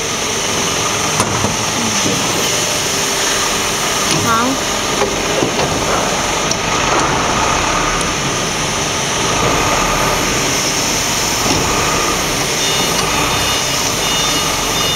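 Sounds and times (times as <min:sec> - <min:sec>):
machinery droning: 0:00.0 - 0:14.9
high-pitched beeps: 0:12.6 - 0:14.9.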